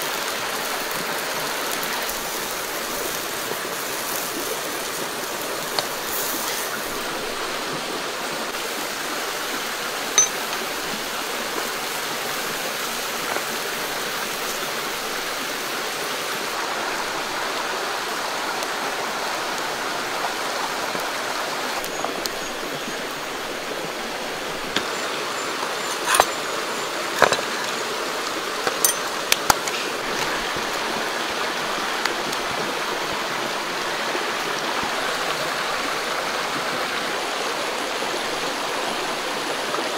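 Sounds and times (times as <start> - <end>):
creek rushing over rocks: 0.0 - 39.9.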